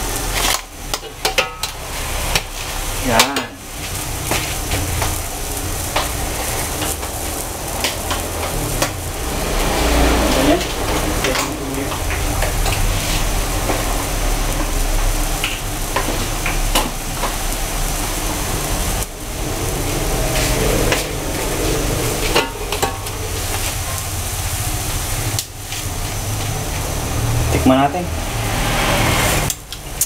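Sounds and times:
broth boiling in wok: 0:00.0 - 0:30.0
metal ladle knocking on pan: 0:01.2 - 0:01.8.

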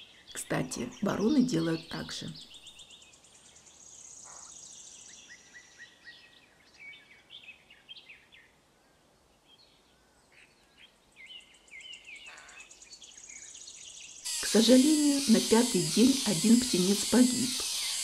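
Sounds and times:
high pulsing trill: 0:14.3 - 0:18.0
nestlings chirping: 0:14.3 - 0:18.0.

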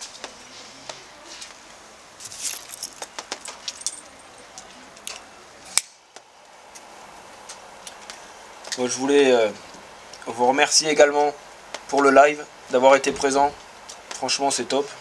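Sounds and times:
hands handling clicks and rustles: 0:02.2 - 0:05.9.

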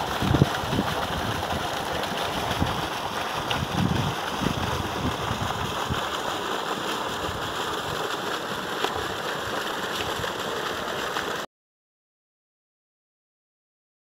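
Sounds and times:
wind rumble on microphone: 0:00.0 - 0:01.8, 0:02.4 - 0:06.0
water rushing from a pipe: 0:00.0 - 0:11.5.

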